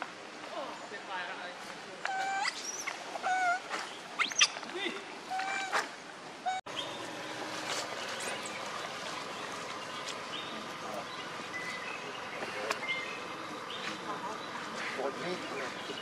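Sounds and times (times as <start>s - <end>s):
steady outdoor hiss: 0.0s - 16.0s
monkey coo call: 2.0s - 4.6s, 5.3s - 7.0s.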